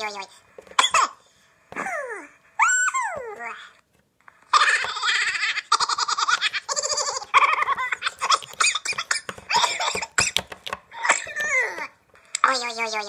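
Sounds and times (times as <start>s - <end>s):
high-pitched person laughing: 4.5s - 10.3s.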